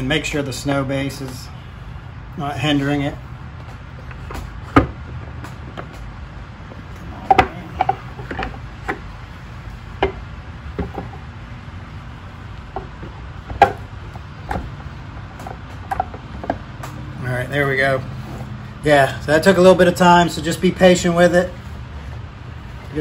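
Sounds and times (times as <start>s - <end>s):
low steady hum: 0.0s - 23.0s
metal pole clicking and knocking: 7.2s - 9.1s, 9.9s - 11.3s, 12.6s - 17.0s.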